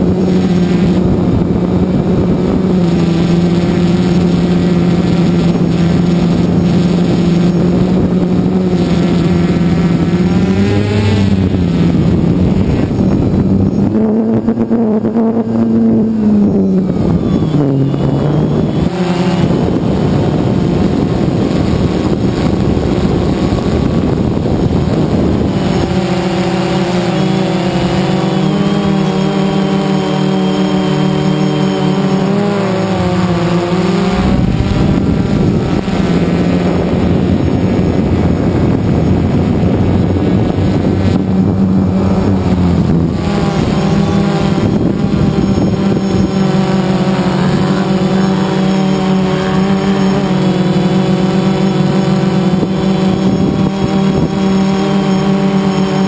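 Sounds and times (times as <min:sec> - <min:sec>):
drone motors buzzing: 0:00.0 - 0:56.0.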